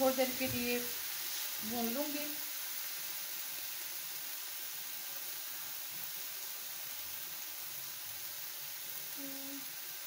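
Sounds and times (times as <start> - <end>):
vegetables sizzling in a frying pan: 0.0 - 10.0.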